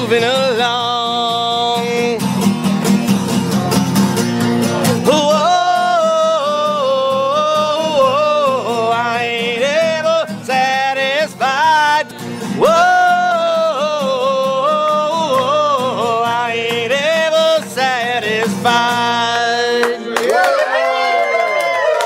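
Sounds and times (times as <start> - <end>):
strummed guitar: 0.0 - 20.3.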